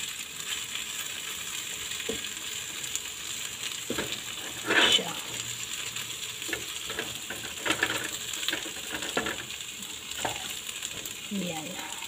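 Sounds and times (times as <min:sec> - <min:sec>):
food sizzling in a frying pan: 0:00.0 - 0:12.0
wooden spatula scraping a pan: 0:03.9 - 0:05.4, 0:06.4 - 0:11.2.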